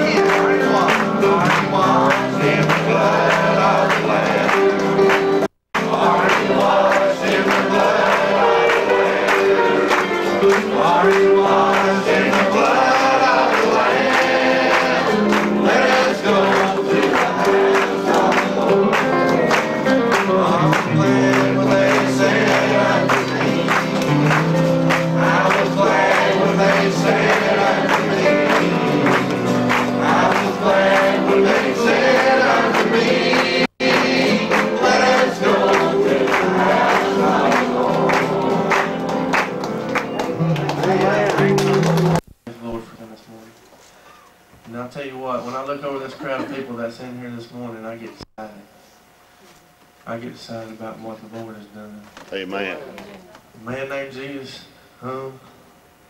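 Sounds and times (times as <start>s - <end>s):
congregation singing a hymn: 0.0s - 42.2s.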